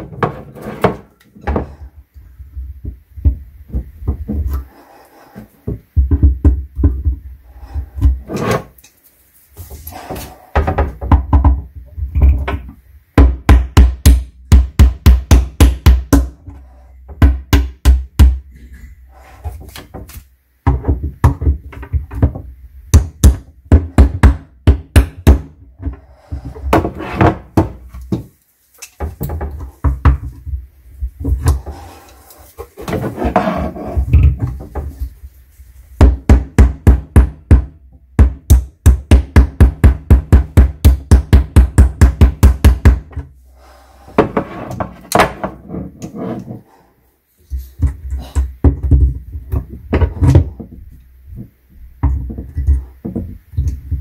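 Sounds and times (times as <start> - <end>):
hammer striking wooden shelf: 13.2 - 16.4, 22.2 - 25.6, 36.0 - 43.2.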